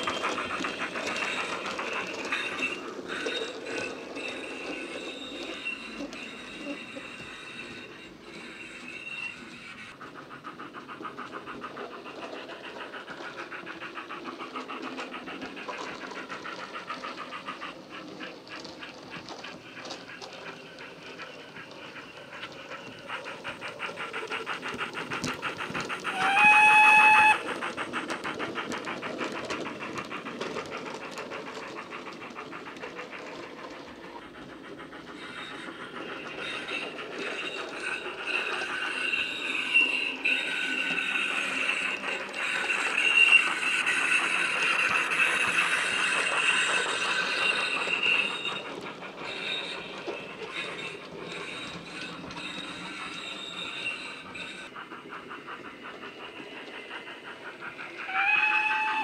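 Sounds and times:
steam locomotive exhaust beats: 0:00.0 - 0:59.0
locomotive whistle blast: 0:26.1 - 0:27.4, 0:58.1 - 0:59.0.

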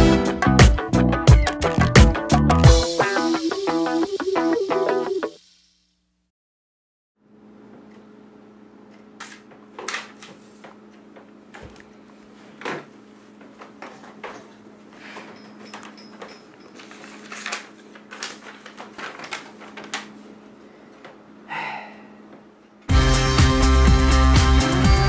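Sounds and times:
paper rustling and knocks: 0:16.7 - 0:20.3.

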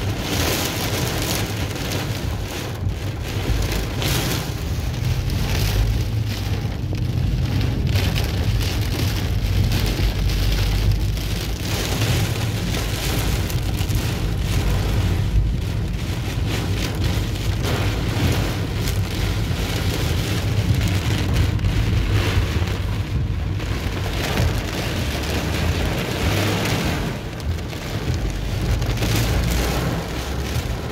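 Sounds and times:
car and tyres rumbling: 0:00.0 - 0:30.9
heavy rain drumming on car roof: 0:00.0 - 0:30.9.

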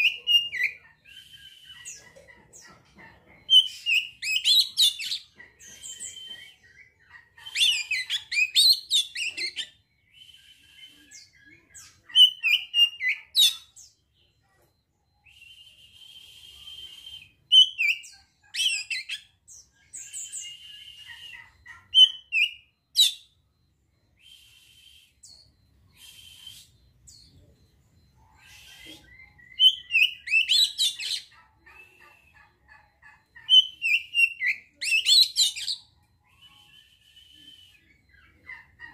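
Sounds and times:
bird singing whistles and chirps: 0:03.6 - 0:13.6, 0:15.2 - 0:18.0, 0:24.2 - 0:26.8, 0:33.5 - 0:38.3.

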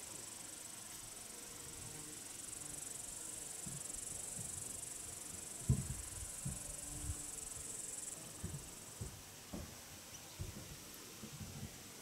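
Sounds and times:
high insect trill: 0:00.0 - 0:09.1.

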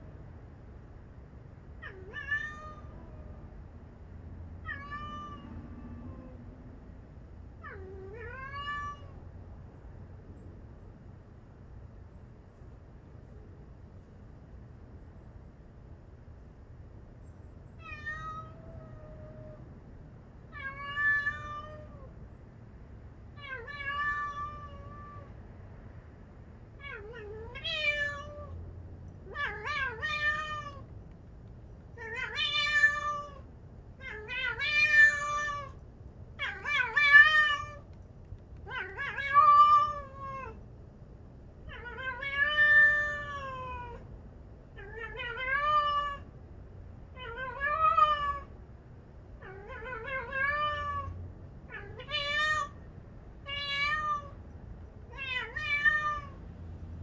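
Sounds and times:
cat meowing: 0:01.8 - 0:03.4, 0:04.6 - 0:06.4, 0:07.6 - 0:09.2, 0:17.8 - 0:19.6, 0:20.5 - 0:22.1, 0:23.4 - 0:25.3, 0:26.8 - 0:28.6, 0:29.3 - 0:30.9, 0:32.0 - 0:33.4, 0:34.0 - 0:35.8, 0:36.4 - 0:37.8, 0:38.7 - 0:40.6, 0:41.7 - 0:44.0, 0:44.8 - 0:46.3, 0:47.2 - 0:48.5, 0:49.4 - 0:51.1, 0:51.7 - 0:52.8, 0:53.4 - 0:54.4, 0:55.1 - 0:56.4.

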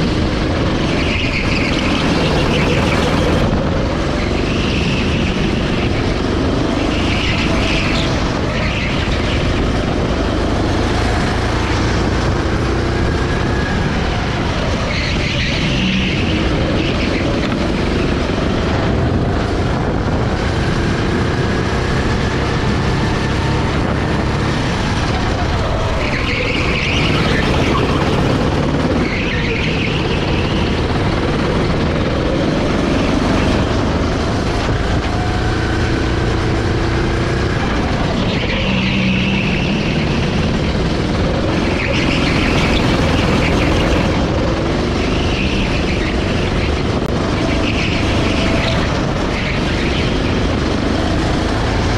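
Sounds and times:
kart engine accelerating: 0:00.0 - 0:51.9.

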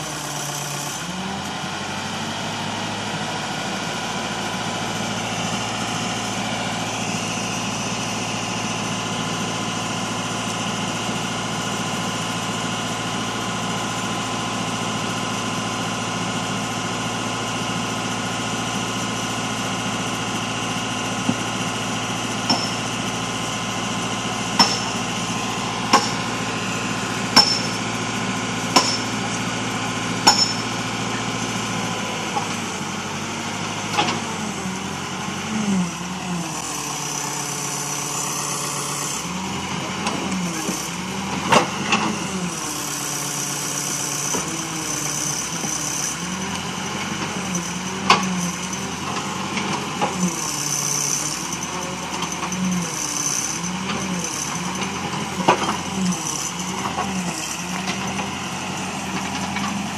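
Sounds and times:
backhoe engine running: 0:00.0 - 0:59.9
sharp metallic strikes: 0:27.3 - 0:27.8.

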